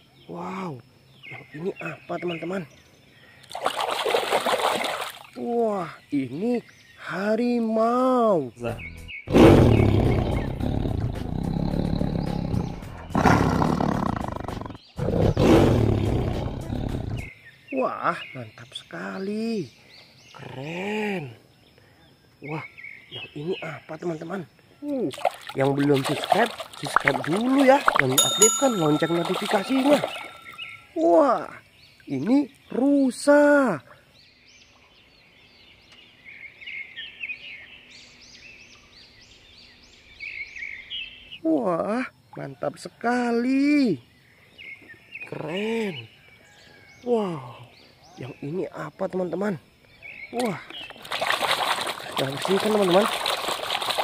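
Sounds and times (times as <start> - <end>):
birds singing and chirping: 0.0 - 54.0
tiger roaring: 9.3 - 17.3.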